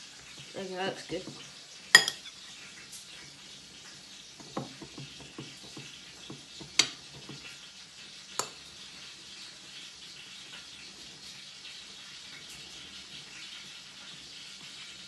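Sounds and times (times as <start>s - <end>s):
spoon clinking on plate: 1.9s - 2.4s.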